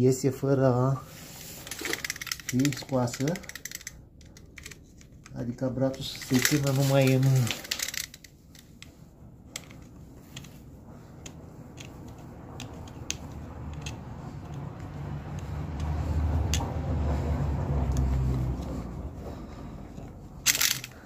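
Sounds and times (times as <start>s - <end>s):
metal parts clicking: 1.6s - 5.4s, 6.0s - 10.6s, 20.4s - 21.0s.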